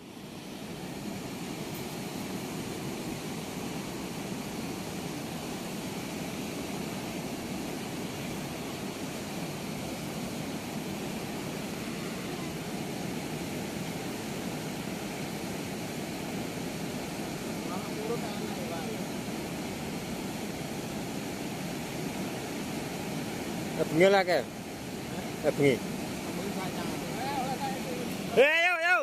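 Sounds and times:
river water rushing through sluice gates: 0.0 - 29.0.

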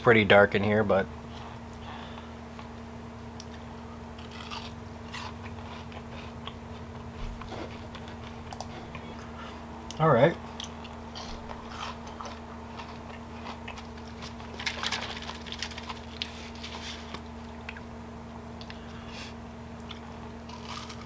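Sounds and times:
steady low hum: 0.0 - 21.0
person chewing crispy fried fish: 3.3 - 9.6, 10.5 - 17.8, 19.8 - 21.0
crisp crackles of coating: 10.6 - 17.8.

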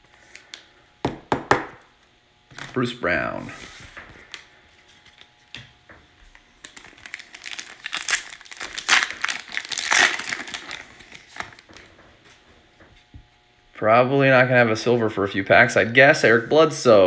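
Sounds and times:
plastic wrapper tearing and crinkling: 6.5 - 11.9.

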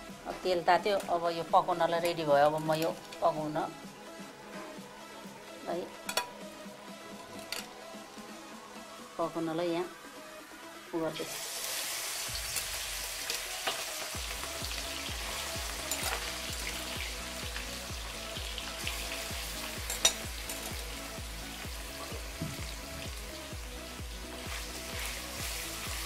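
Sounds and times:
chicken sizzling in hot oil: 11.1 - 26.0
metal spoon clinking on wok: 15.9 - 16.2, 19.8 - 20.7.

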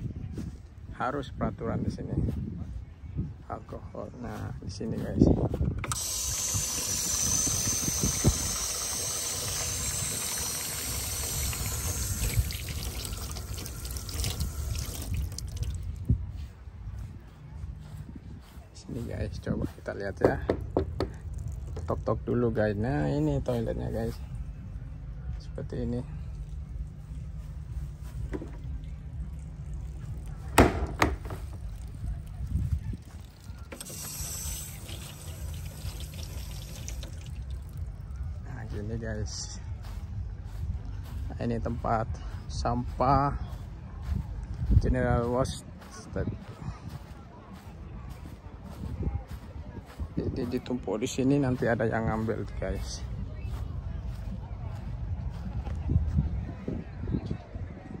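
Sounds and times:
wind rumble on microphone: 0.0 - 8.8, 11.2 - 33.7, 35.8 - 58.0
water running into plastic basin: 6.0 - 15.9, 33.0 - 37.9
water dripping: 9.2 - 15.9, 34.5 - 37.8.

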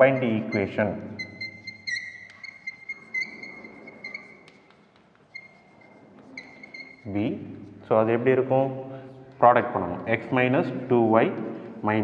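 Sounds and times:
chalk squeaking on blackboard: 0.0 - 7.9
light chalk taps: 2.1 - 7.9.

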